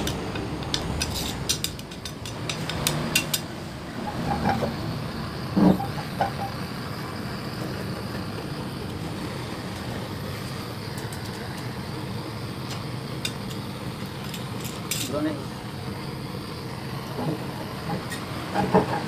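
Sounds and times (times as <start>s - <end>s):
gas torch hissing: 0.0s - 19.0s.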